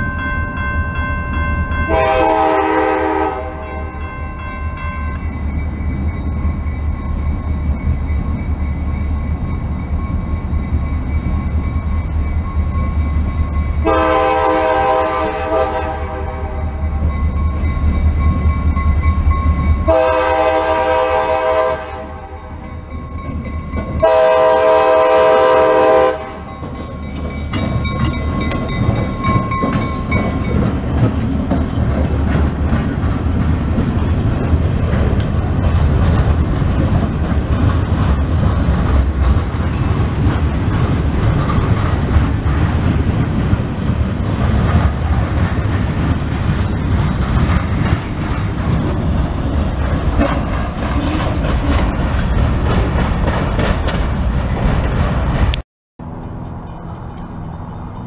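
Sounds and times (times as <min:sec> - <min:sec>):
locomotive engines rumbling: 0:00.0 - 0:58.0
locomotive air horn blasts: 0:01.9 - 0:04.0, 0:13.8 - 0:16.8, 0:19.9 - 0:22.5, 0:24.0 - 0:26.5
train wheels clattering over rail joints: 0:26.4 - 0:55.6.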